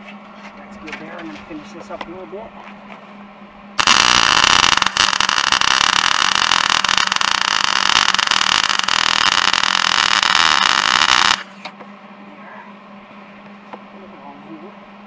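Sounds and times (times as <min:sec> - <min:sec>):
welder arc crackling and sizzling: 0:03.8 - 0:11.6.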